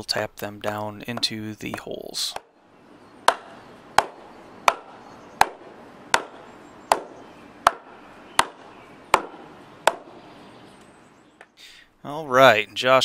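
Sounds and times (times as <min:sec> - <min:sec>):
rubber mallet striking wood: 0:03.2 - 0:10.2.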